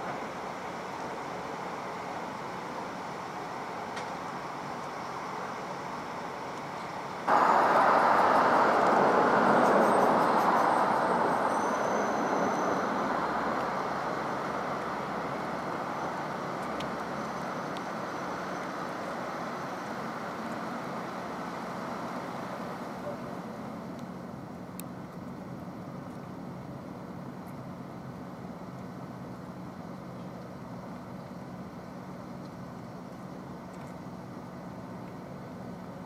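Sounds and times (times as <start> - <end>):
road traffic rush: 0.0 - 27.3.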